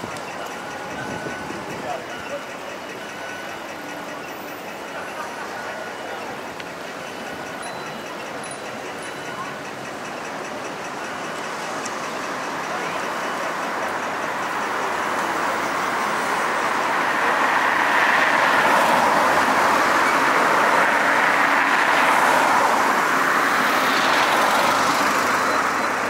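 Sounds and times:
cars passing: 0.0s - 26.0s.

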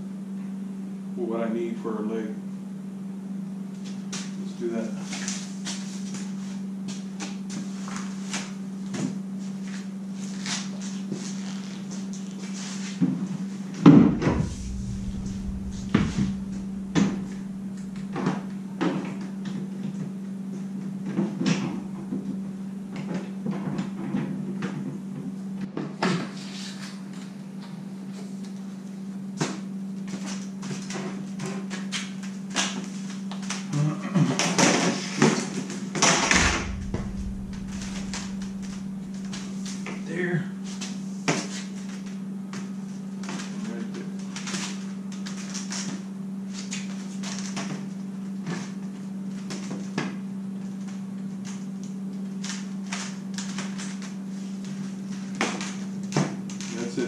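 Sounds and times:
heavy thump: 13.9s - 18.3s, 36.2s - 39.7s
steady low hum: 13.9s - 18.8s, 21.4s - 22.9s, 36.1s - 40.6s.

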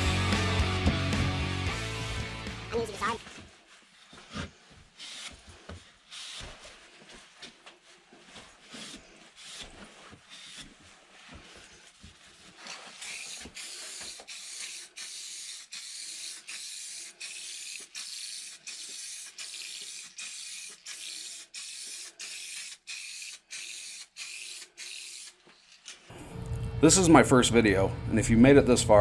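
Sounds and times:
cloth rubbing on wood: 5.3s - 17.1s
aerosol spray can hissing: 13.0s - 25.4s.

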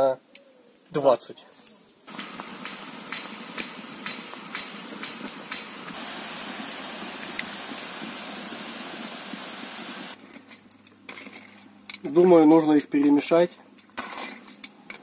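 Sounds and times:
small pops: 1.7s - 6.0s, 7.2s - 7.6s
broth boiling and bubbling: 2.1s - 10.2s.

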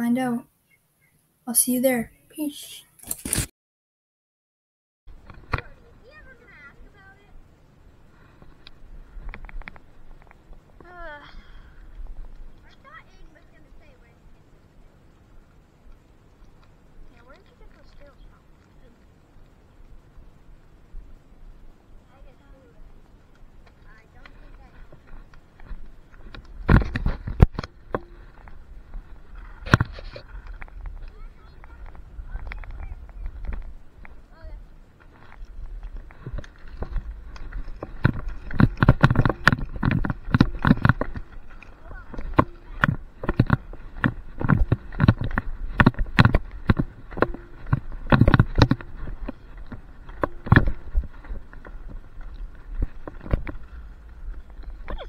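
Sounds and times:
wheels rolling over rough asphalt: 5.1s - 55.0s
sharp knocks and clatters: 36.1s - 53.8s.

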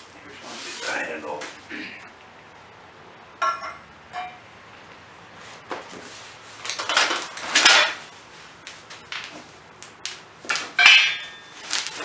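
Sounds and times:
metallic clank: 3.4s - 4.4s, 10.7s - 12.0s
cardboard and plastic rustling: 11.6s - 12.0s.

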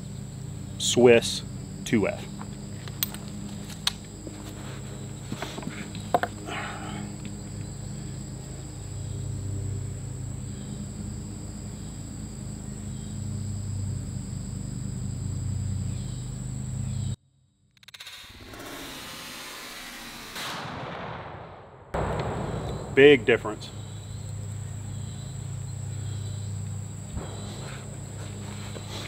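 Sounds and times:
high-pitched insect drone: 0.0s - 17.2s, 23.0s - 29.0s
low steady hum: 0.0s - 17.2s, 22.0s - 29.0s
sharp clicks of gun handling: 2.8s - 4.0s.

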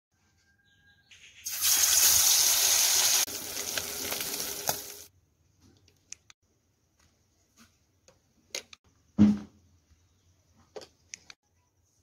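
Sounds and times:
fish sizzling in hot oil: 1.4s - 5.1s.

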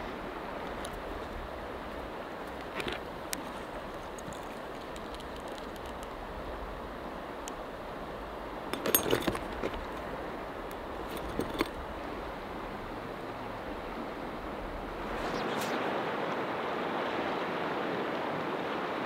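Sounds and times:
flowing river rushing: 0.0s - 19.0s
fishing gear clicks and clinks: 2.5s - 6.1s, 8.7s - 10.1s, 11.0s - 11.8s.

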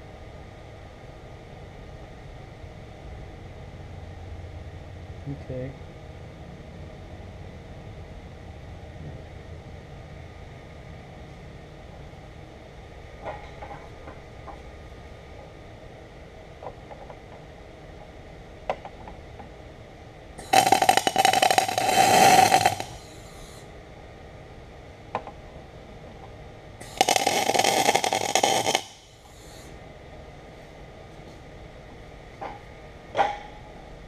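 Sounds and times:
welding arc crackling: 20.4s - 23.6s, 26.8s - 29.7s
welding gun clicks: 26.8s - 29.1s.

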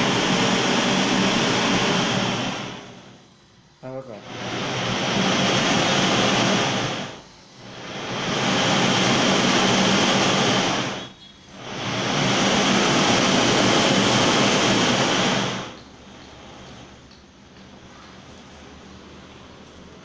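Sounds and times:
flame gun rushing: 4.2s - 15.8s.

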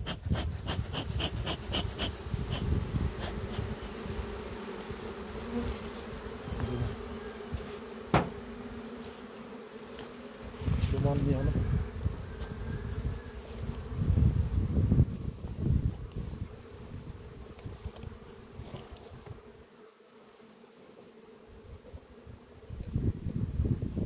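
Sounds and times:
bee smoker bellows puffs: 0.0s - 14.0s, 17.6s - 19.5s
honeybees buzzing: 0.0s - 23.9s
sharp tap: 8.1s - 8.3s.

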